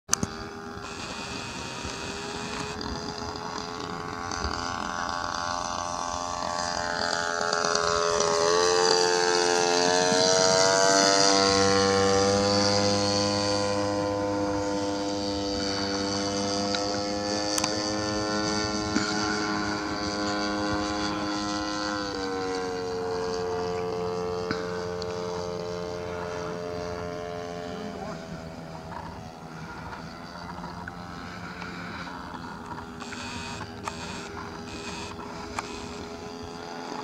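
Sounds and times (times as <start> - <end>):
propeller aircraft flying past: 0.1 - 37.0
steady low hum: 0.1 - 37.0.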